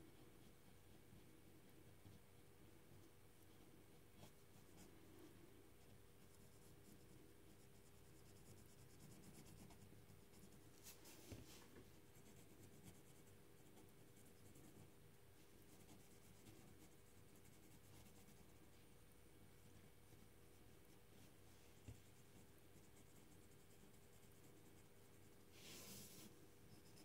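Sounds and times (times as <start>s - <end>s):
low steady hum: 0.0s - 27.0s
pen scratching on paper: 6.3s - 10.6s.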